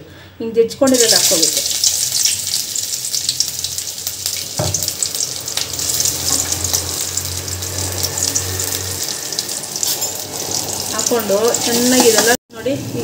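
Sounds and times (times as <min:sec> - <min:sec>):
ginger and garlic sizzling in oil: 0:00.7 - 0:13.0
low hum: 0:04.5 - 0:11.7.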